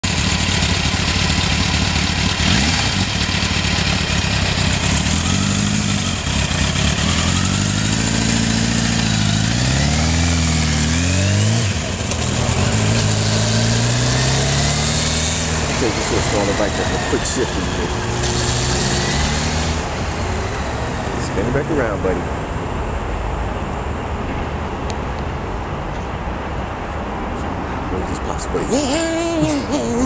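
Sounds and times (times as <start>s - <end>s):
motorcycle engine revving: 0.0s - 22.2s.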